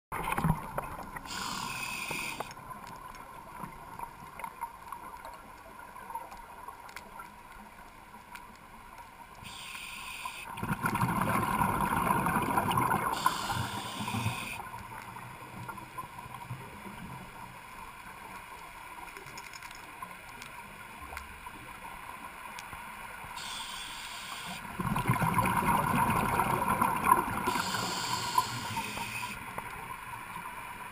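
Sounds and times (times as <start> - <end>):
muffled underwater noise: 0.7 - 2.5, 9.4 - 10.5, 11.2 - 14.7, 23.4 - 24.7, 25.3 - 29.7
bursts of hiss: 1.3 - 2.5, 9.5 - 10.5, 13.2 - 14.6, 23.4 - 24.7, 27.5 - 29.4
water rushing: 23.4 - 29.5.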